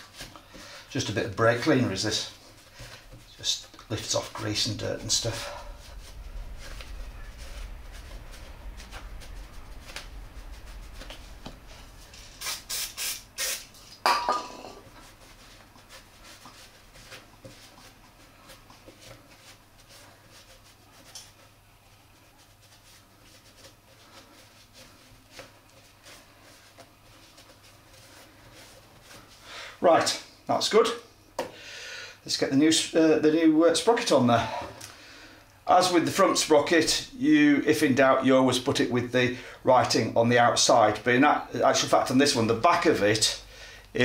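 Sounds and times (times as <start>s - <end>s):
aerosol spray hissing: 12.2s - 13.8s.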